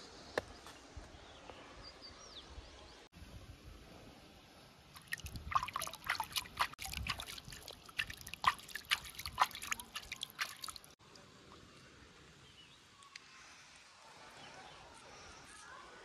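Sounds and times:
hand splashing water in stream: 5.0s - 11.0s
water dripping: 5.0s - 11.0s.

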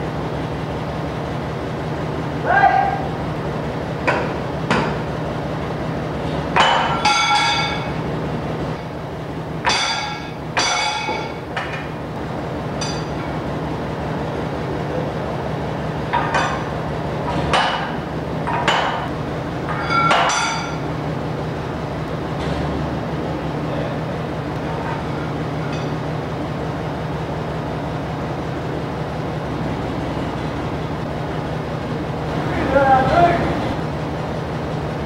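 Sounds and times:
steady low hum: 0.0s - 35.0s
hammer striking steel: 6.6s - 7.9s, 9.6s - 11.8s, 12.8s - 13.3s, 19.7s - 20.8s.

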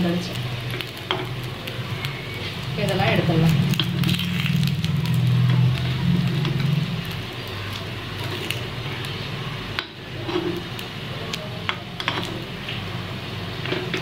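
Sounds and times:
oil sizzling in a pan: 0.0s - 14.0s
metal spoon scraping a pan: 10.2s - 10.7s, 12.0s - 12.4s.

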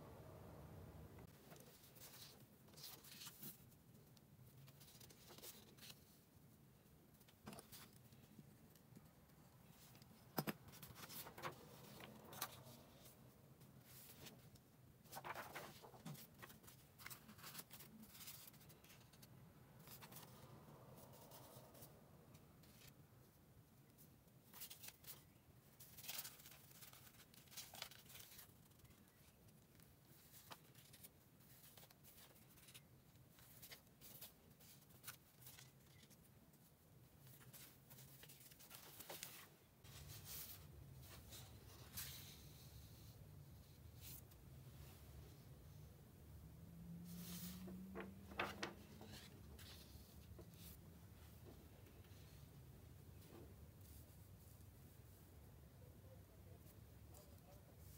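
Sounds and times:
low steady hum: 0.0s - 2.2s
paper rustling and tapping: 47.7s - 49.7s.

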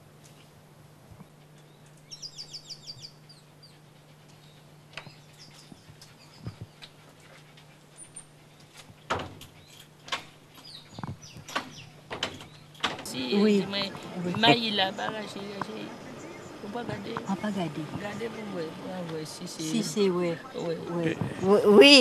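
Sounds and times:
faint steady hum: 0.0s - 22.0s
small bird chirping: 1.5s - 6.9s, 10.5s - 18.2s
clicks and rustles: 4.1s - 13.1s.

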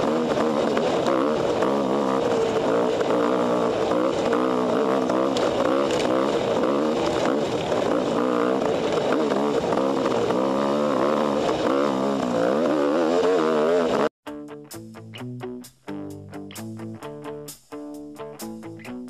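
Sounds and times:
dirt bike engine revving: 0.0s - 14.1s.

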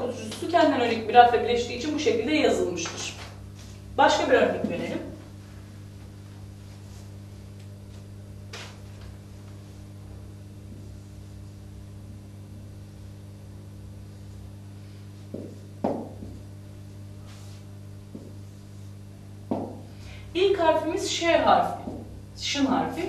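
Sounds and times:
low electrical hum: 0.0s - 23.0s
marker knocking on whiteboard: 15.3s - 16.4s, 18.1s - 18.4s, 19.5s - 19.8s, 21.8s - 22.2s.

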